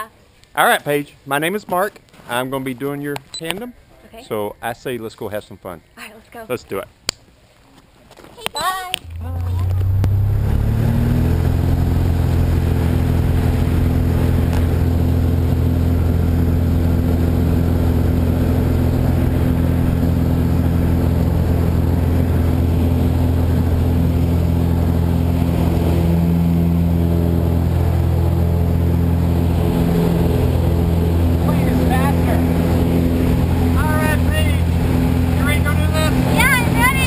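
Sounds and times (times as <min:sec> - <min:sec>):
light aircraft engine and propeller: 0:09.0 - 0:37.0.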